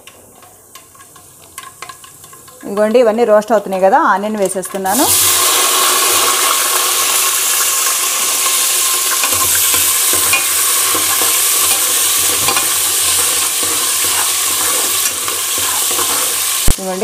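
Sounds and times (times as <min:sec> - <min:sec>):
onions sizzling in hot oil: 0:00.0 - 0:17.0
metal ladle scraping pot: 0:07.8 - 0:16.7.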